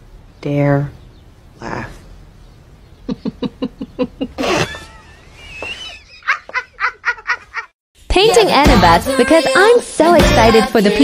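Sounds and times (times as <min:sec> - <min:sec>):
person laughing hysterically: 0:03.1 - 0:07.7
high wheezing squeal: 0:04.5 - 0:06.1.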